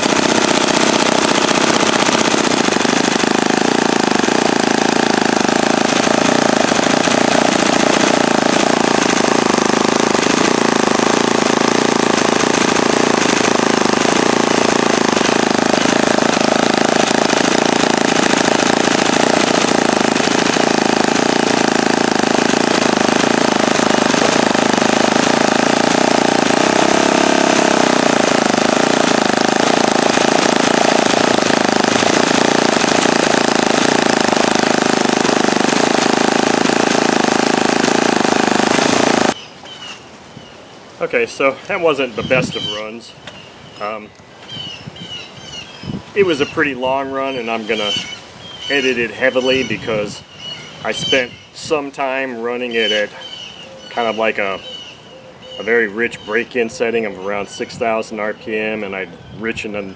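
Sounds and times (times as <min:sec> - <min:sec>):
model engine running fast idle: 0:00.0 - 0:39.4.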